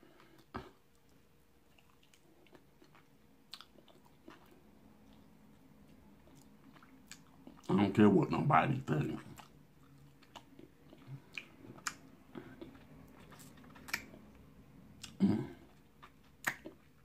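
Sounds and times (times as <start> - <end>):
open-mouthed chewing and lip-smacking: 0.0 - 7.8, 9.2 - 17.0
wet mouth clicks: 11.3 - 12.7, 13.3 - 14.3.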